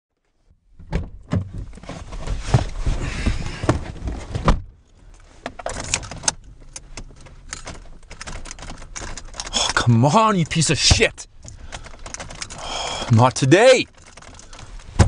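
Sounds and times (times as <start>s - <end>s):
rustling: 1.5s - 9.6s
jangling keys: 13.8s - 14.8s.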